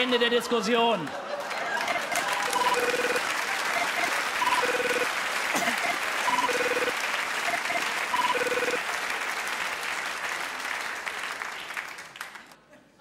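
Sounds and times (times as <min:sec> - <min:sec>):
audience applause: 0:00.0 - 0:12.7
phone ringtone beeping tune: 0:01.9 - 0:06.9, 0:07.5 - 0:08.8.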